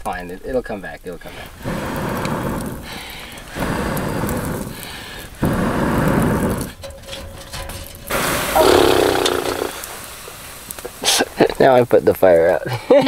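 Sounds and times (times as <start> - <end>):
person blowing on embers: 1.2 - 6.8, 8.1 - 11.5.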